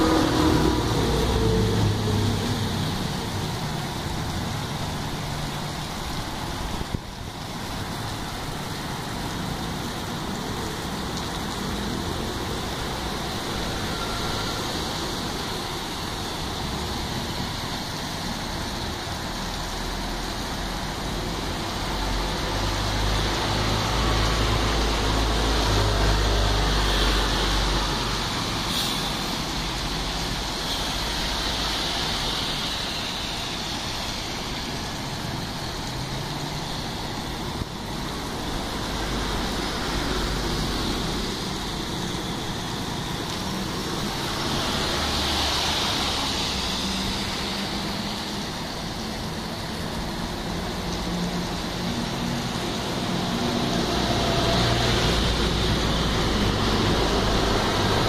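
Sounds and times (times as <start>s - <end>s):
rain hissing: 0.0s - 58.0s
traffic on wet streets: 0.0s - 58.0s.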